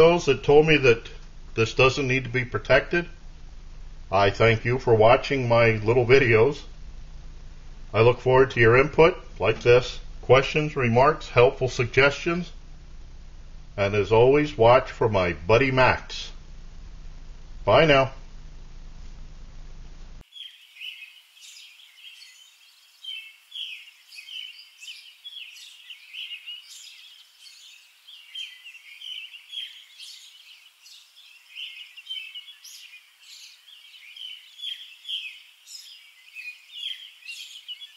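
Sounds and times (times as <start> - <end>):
faint room hum: 0.0 - 37.9
songbirds chirping and singing: 20.2 - 37.9.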